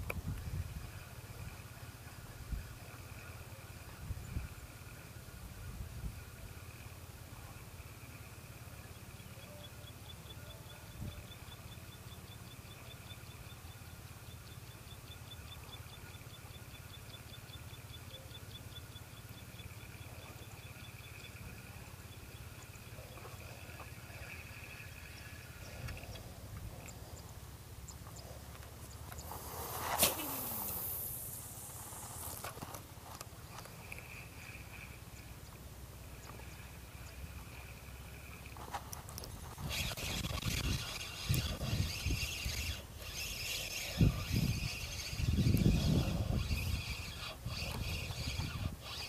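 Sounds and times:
wind rumbling on microphone: 0.0s - 1.6s, 3.9s - 4.7s, 38.4s - 49.0s
faint high whine: 0.0s - 49.0s
insects chirping: 6.2s - 49.0s.

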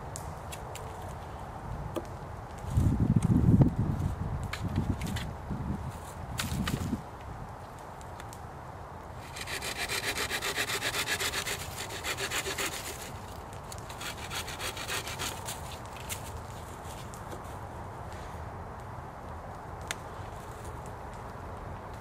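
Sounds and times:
hand saw cutting wood: 9.2s - 13.2s, 13.9s - 15.8s.

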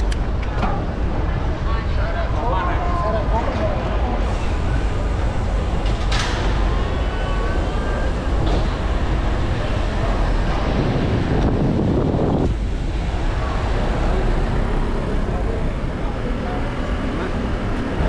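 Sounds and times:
street traffic: 0.0s - 18.0s
wind buffeting microphone: 8.2s - 14.9s.

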